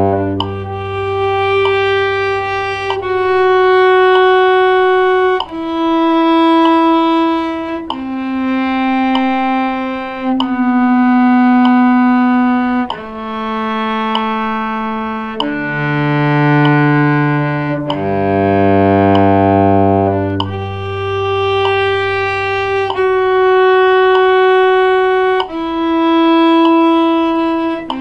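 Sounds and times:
cello long bowed notes: 0:00.0 - 0:28.0.

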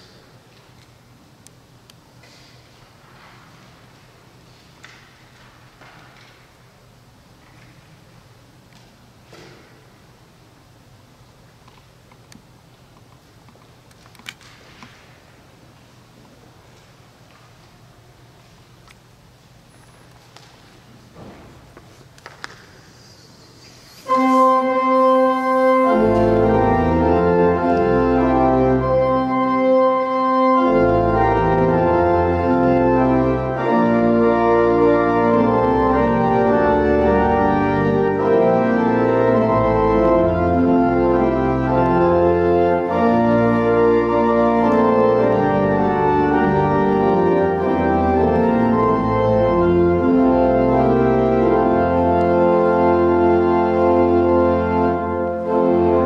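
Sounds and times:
church organ chords: 0:23.6 - 0:56.0
low bass organ notes: 0:23.7 - 0:56.0.

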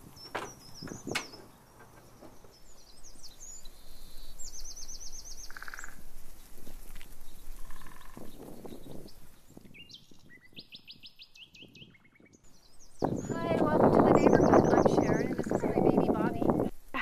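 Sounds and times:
small birds chirping: 0:00.0 - 0:17.0
sharp knocks: 0:00.3 - 0:02.6.

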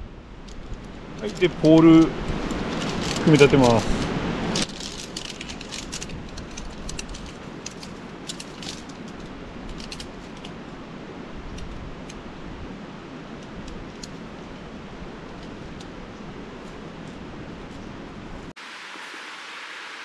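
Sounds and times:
steady hiss: 0:00.0 - 0:20.0
tent poles clattering and clicking: 0:00.4 - 0:10.7, 0:13.3 - 0:14.3.

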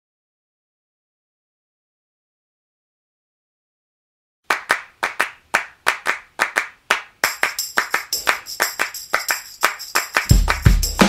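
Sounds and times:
hand-clap beat: 0:04.5 - 0:11.0
tambourine jingle: 0:07.2 - 0:11.0.

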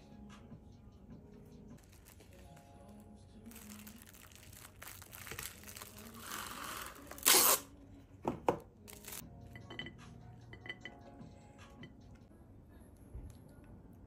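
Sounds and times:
plastic cling wrap rustling: 0:01.8 - 0:07.6, 0:08.9 - 0:09.2
cling wrap crinkling rip: 0:01.8 - 0:07.7, 0:08.9 - 0:09.2.

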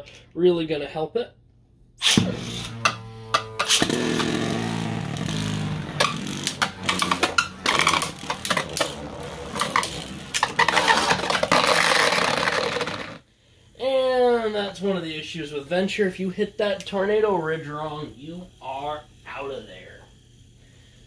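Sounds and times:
spinning tops whirring: 0:02.0 - 0:13.2
spinning tops clacking: 0:02.6 - 0:13.2.

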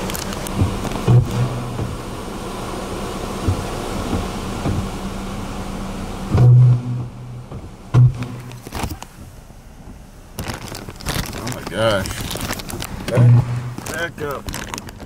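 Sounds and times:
power lines arcing buzz: 0:00.0 - 0:09.2, 0:10.3 - 0:15.0
rain: 0:00.0 - 0:15.0
wind: 0:00.0 - 0:15.0.

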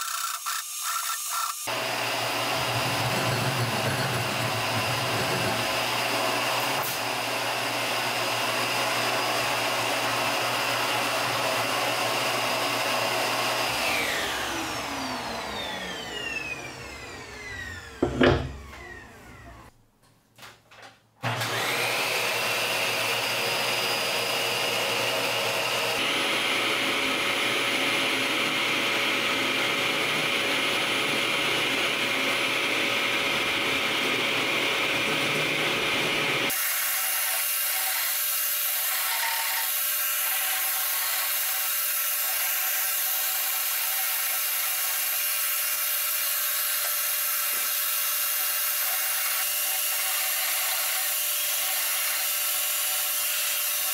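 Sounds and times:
vacuum motor whining: 0:01.6 - 0:19.7, 0:21.3 - 0:36.6
wooden boards knocking: 0:18.0 - 0:18.6.

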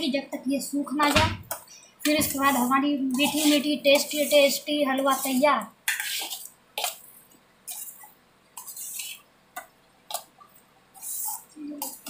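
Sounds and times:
spatula scraping thick paste in pan: 0:01.5 - 0:09.3, 0:10.9 - 0:12.0.

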